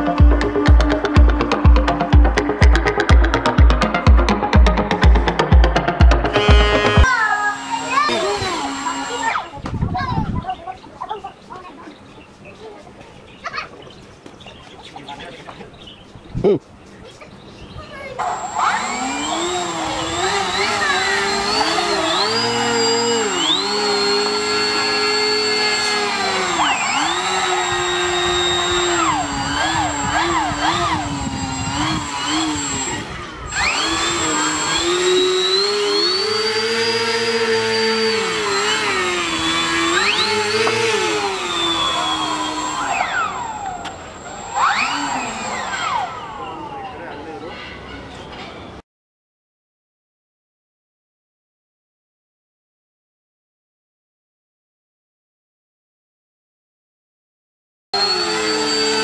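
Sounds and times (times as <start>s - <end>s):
electric motor whining: 0.0s - 9.7s, 18.2s - 47.2s, 58.0s - 59.0s.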